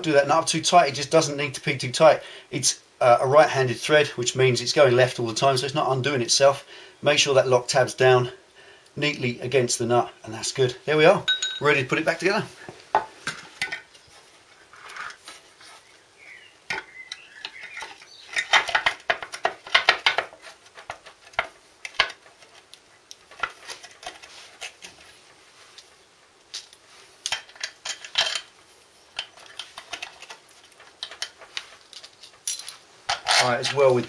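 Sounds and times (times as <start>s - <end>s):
metal clinks and rattles: 11.3s - 11.8s, 31.0s - 33.8s.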